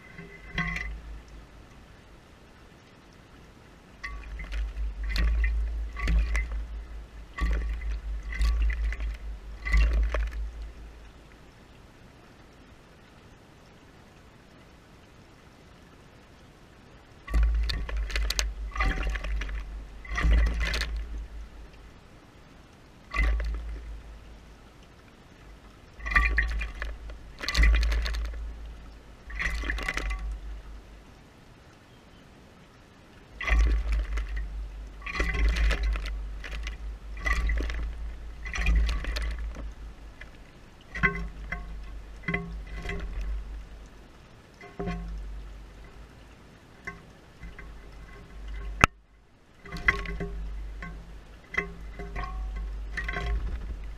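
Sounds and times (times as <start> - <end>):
bird splashing in water: 4.0 - 10.8, 17.2 - 21.9, 23.1 - 24.2, 26.0 - 30.7, 33.4 - 44.0.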